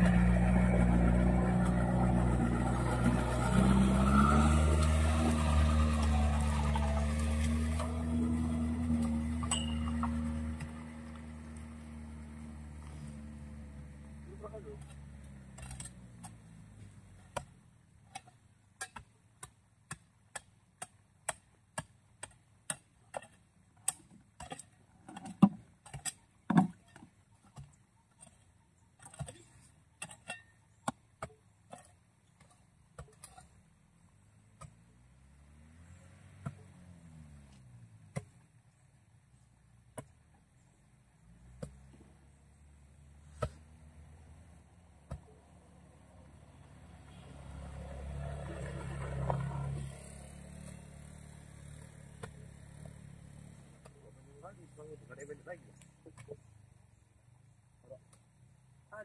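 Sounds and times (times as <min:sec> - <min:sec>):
vehicle engine passing: 0:00.0 - 0:16.2, 0:34.8 - 0:38.1, 0:41.3 - 0:56.0
steel bar tapping metal: 0:09.5 - 0:10.1.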